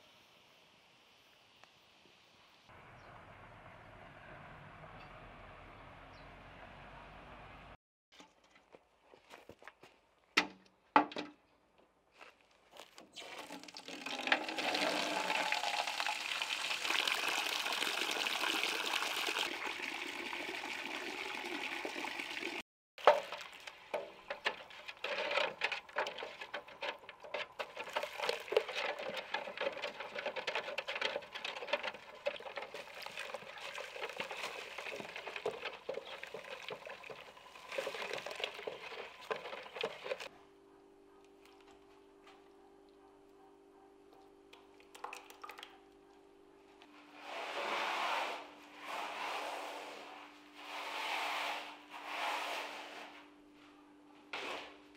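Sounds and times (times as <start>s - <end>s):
powder pouring into water: 13.2s - 40.3s
stick knocking against bucket: 23.0s - 40.3s
water sloshing: 23.0s - 40.3s.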